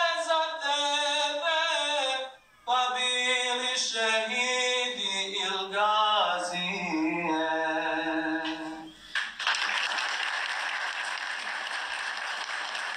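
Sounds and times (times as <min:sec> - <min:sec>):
man singing unaccompanied: 0:00.0 - 0:08.9
audience applause: 0:09.1 - 0:12.9.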